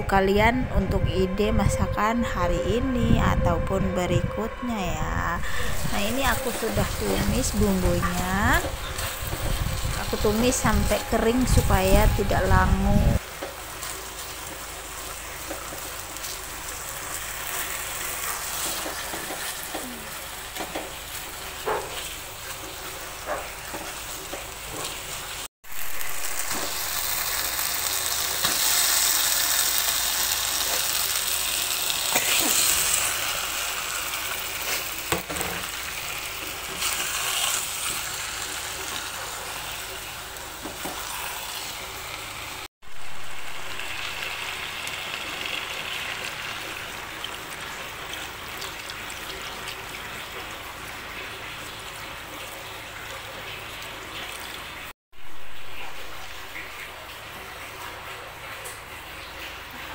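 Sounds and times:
paste sizzling in a wok: 13.2 - 50.3
spatula scraping wok: 30.3 - 42.0.

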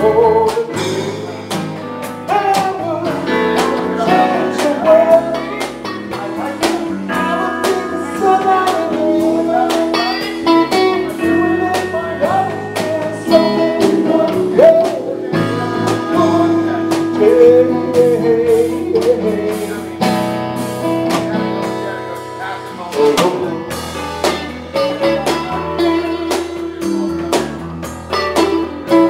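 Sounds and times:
live band playing: 0.0 - 29.0
wavering lead melody: 0.0 - 29.0.

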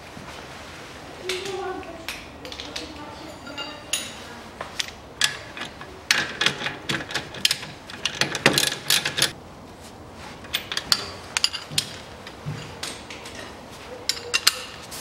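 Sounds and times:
tools clinking on metal: 2.1 - 9.4, 10.4 - 14.8.

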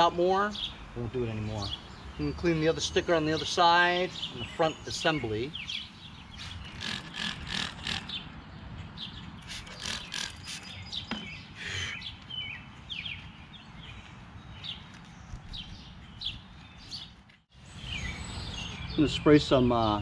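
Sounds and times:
birds chirping: 0.0 - 20.0
rag rubbing plastic lens: 6.4 - 8.2, 9.4 - 10.8
spray bottle squirting: 9.4 - 10.8.

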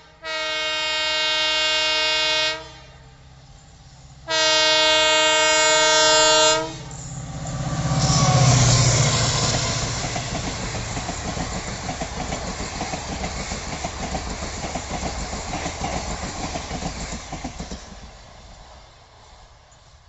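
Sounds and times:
diesel locomotive engine droning: 0.0 - 20.0
train wheels clicking over rail joints: 6.8 - 18.8.

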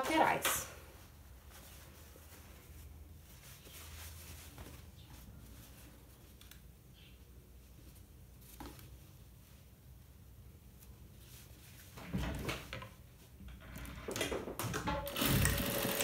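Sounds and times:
fabric rustling: 0.1 - 6.6, 7.6 - 12.2.

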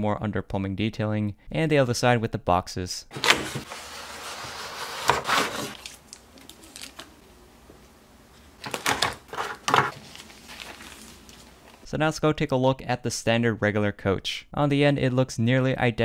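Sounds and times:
plastic rustling crinkle: 3.1 - 11.9.

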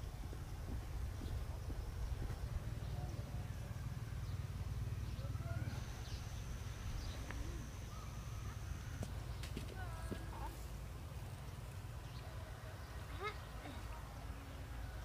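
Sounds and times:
steady low rumble: 0.0 - 12.4
faint bird chirps: 1.2 - 10.5.

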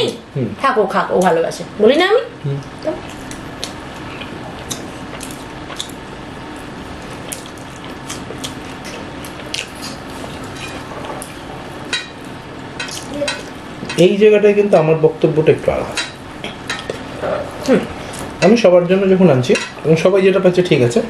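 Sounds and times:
steady background hum: 0.0 - 21.0
chewing and lip smacking: 2.7 - 6.0.

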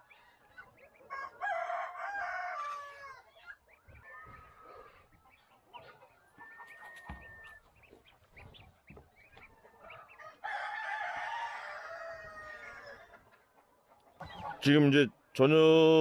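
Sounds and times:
goslings peeping: 0.0 - 1.6, 2.2 - 15.5
rooster crowing: 1.1 - 3.2, 10.1 - 13.0.

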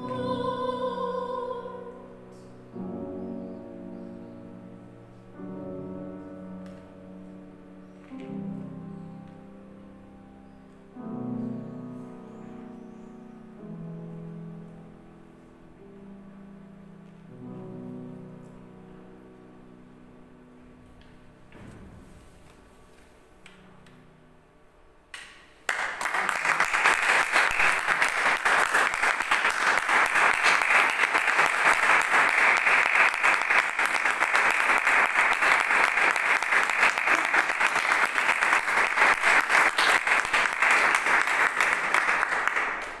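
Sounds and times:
piano chord: 0.0 - 24.6
audience applause: 25.7 - 43.0.

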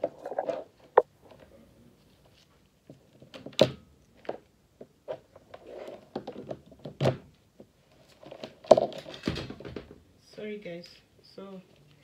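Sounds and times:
knocks and thuds of objects handled: 6.0 - 10.0.

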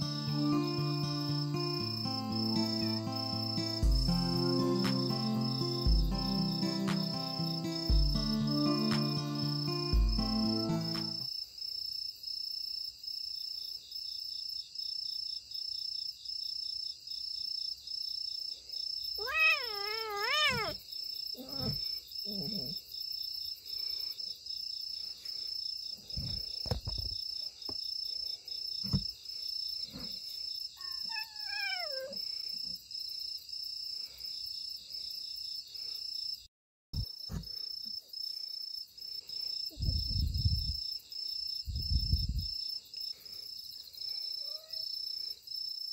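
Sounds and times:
crickets chirping: 0.0 - 45.9
cat meowing: 19.2 - 20.8, 21.4 - 22.8, 30.8 - 32.2, 44.4 - 44.8.

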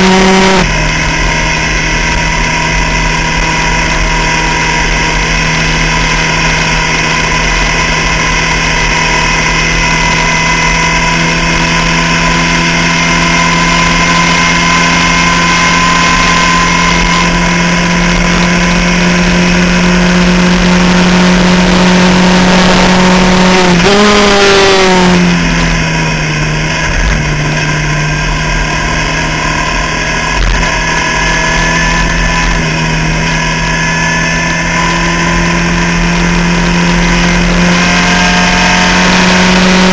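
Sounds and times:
race car engine revving: 0.0 - 39.9.

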